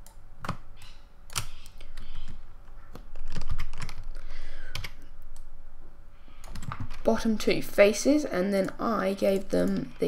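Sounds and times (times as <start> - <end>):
computer keyboard clicking: 1.3 - 4.1, 6.4 - 7.0.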